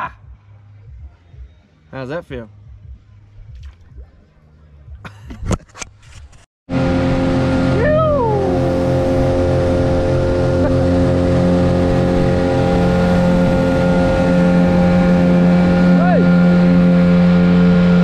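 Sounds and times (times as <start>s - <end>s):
outboard motor running: 6.7s - 18.0s
brief rising and falling cry: 7.6s - 11.6s.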